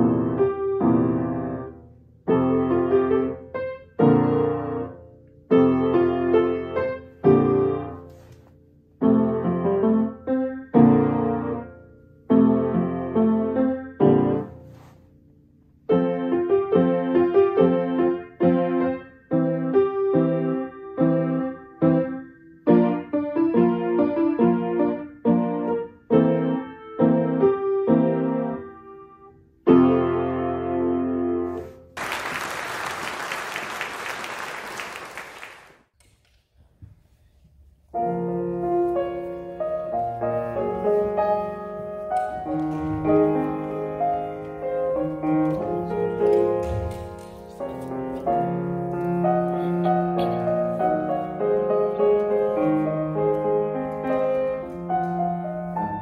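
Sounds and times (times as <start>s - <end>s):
grand piano playing: 0.0s - 14.8s, 15.7s - 32.0s, 37.9s - 56.0s
audience applause: 32.0s - 35.8s.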